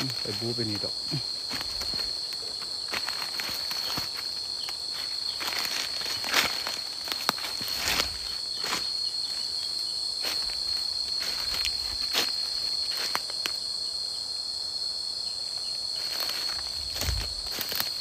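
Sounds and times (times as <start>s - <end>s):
footsteps on dry leaves: 0.0s - 13.5s, 15.9s - 18.0s
insects droning: 0.0s - 18.0s
twigs snapping: 1.5s - 8.8s, 16.1s - 18.0s.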